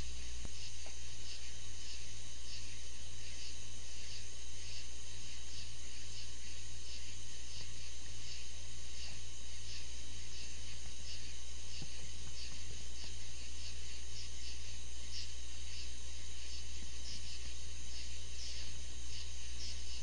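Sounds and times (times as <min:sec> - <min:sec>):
constant low hum: 0:00.0 - 0:20.0
crickets chirping: 0:00.0 - 0:20.0.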